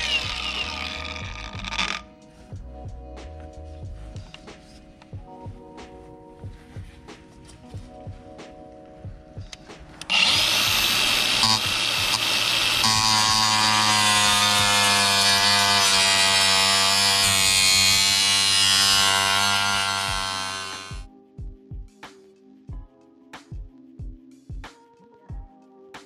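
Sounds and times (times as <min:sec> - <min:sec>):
angle grinder cutting steel: 0:00.0 - 0:02.0, 0:10.1 - 0:21.1.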